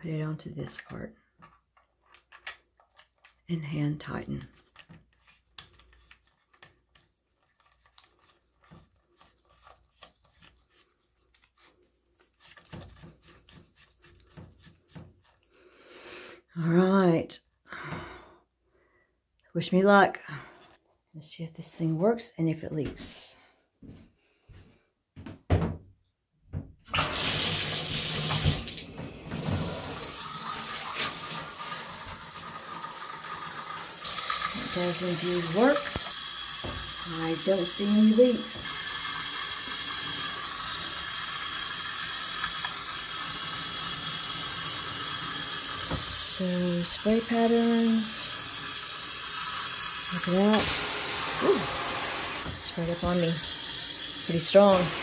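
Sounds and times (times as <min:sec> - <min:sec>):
water rushing from shower head: 0:26.9 - 0:55.0.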